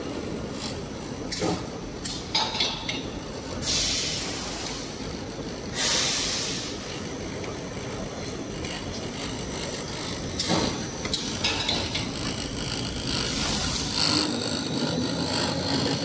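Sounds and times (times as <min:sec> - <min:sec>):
production line mechanical noise: 0:00.0 - 0:16.0
loud hisses: 0:03.6 - 0:04.9, 0:05.8 - 0:06.8.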